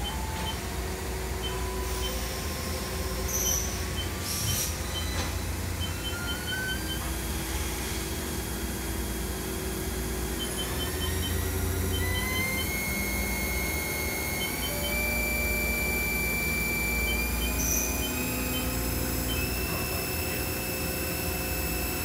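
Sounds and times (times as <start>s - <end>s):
low machine hum: 0.0s - 22.0s
mill spindle whine rising: 0.0s - 22.0s.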